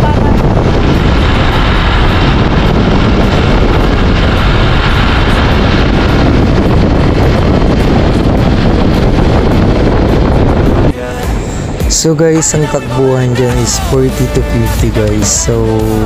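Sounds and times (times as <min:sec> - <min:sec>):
vehicle engine running: 0:00.0 - 0:10.9
road noise: 0:00.0 - 0:16.0
wind rush on microphone: 0:00.0 - 0:16.0.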